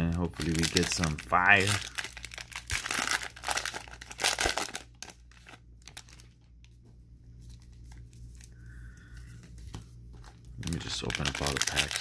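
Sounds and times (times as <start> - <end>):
cellophane wrapper crinkling: 0.0 - 6.8, 9.4 - 12.0.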